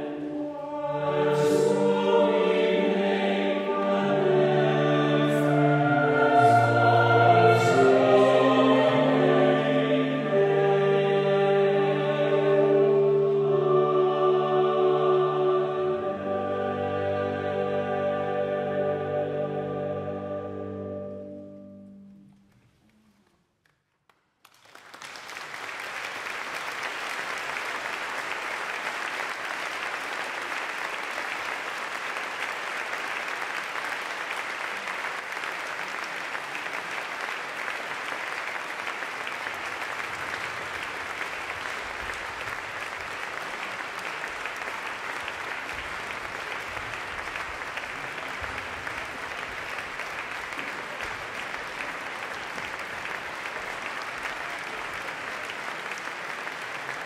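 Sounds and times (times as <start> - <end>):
music chord: 0.2 - 22.6
audience applauding: 22.5 - 57.0.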